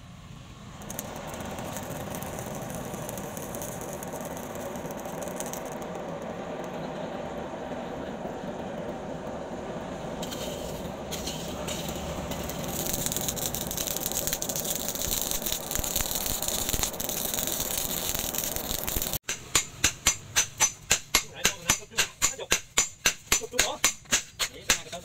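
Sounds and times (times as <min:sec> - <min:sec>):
forge fire rushing and crackling: 0:00.4 - 0:19.2.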